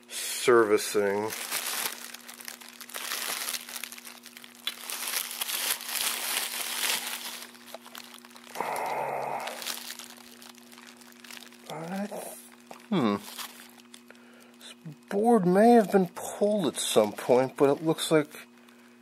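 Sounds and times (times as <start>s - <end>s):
steady low hum: 0.0s - 19.0s
bubble wrap crinkling: 0.5s - 14.6s.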